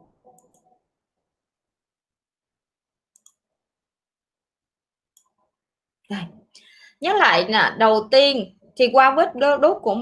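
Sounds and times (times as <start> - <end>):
computer mouse clicks: 0.3 - 0.7, 3.1 - 3.4.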